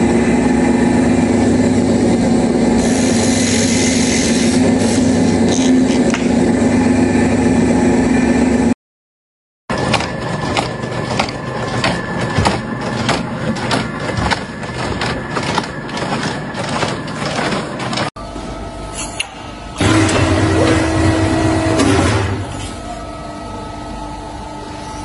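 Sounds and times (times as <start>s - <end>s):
brick production line clattering: 9.7s - 18.1s, 19.0s - 22.6s.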